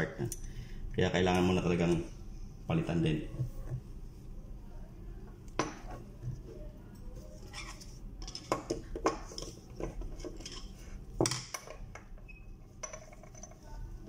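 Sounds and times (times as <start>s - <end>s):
metal clinks and knocks: 8.2s - 13.8s.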